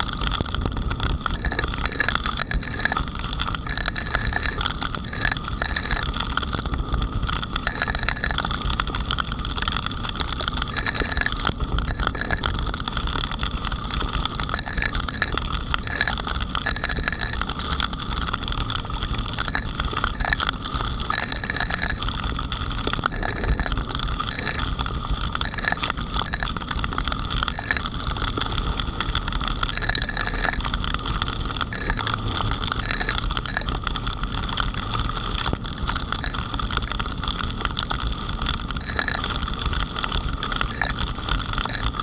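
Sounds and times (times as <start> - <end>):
heavy rain striking camera: 0.0 - 42.0
car and tyres on wet road: 26.0 - 36.8.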